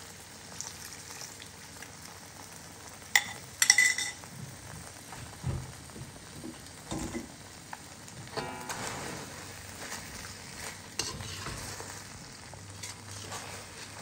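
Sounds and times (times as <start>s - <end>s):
meat sizzling in a wok: 0.0s - 14.0s
spatula scraping and clanking wok: 6.5s - 7.4s, 8.3s - 14.0s.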